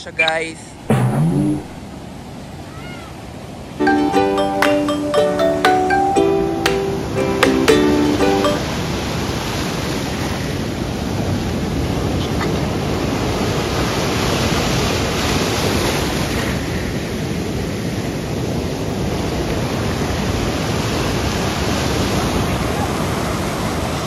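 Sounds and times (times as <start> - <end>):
ocean surf breaking: 0.5 - 17.0.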